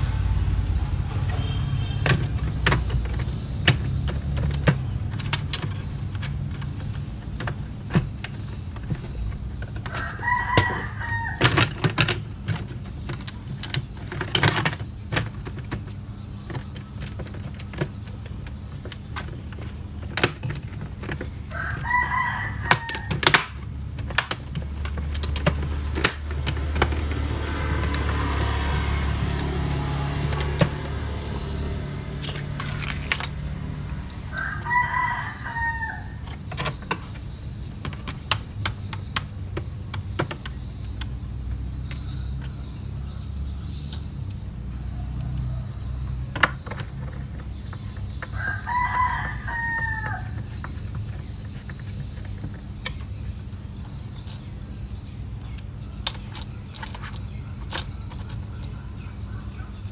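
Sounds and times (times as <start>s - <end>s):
rooster crowing: 9.9s - 11.5s, 21.5s - 23.1s, 34.2s - 36.2s, 48.3s - 50.6s.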